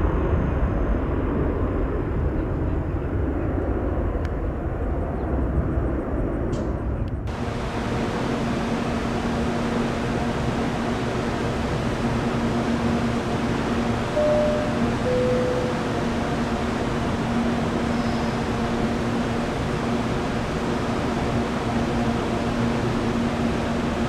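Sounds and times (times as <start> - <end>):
jet engines rumbling: 0.0 - 24.0
steady hiss with low hum: 7.3 - 24.0.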